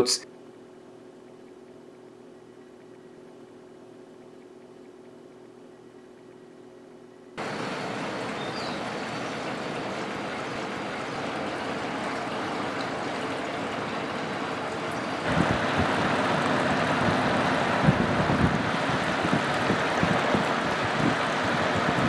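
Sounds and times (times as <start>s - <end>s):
faint motor hum: 0.0s - 22.0s
fan air rushing: 0.0s - 22.0s
air buffeting microphone: 7.4s - 22.0s.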